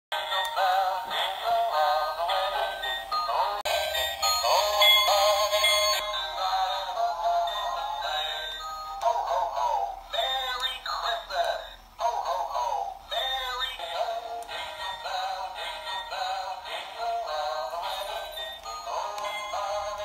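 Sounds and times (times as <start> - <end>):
toy playing christmas song: 0.2 - 20.0.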